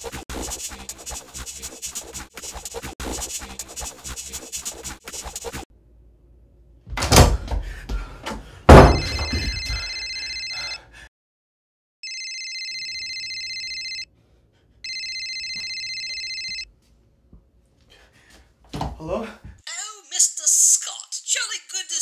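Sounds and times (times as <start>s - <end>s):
heavy thumps on wooden door: 8.7s - 9.5s
mobile phone ringing: 9.0s - 10.8s, 12.0s - 14.1s, 14.8s - 16.7s.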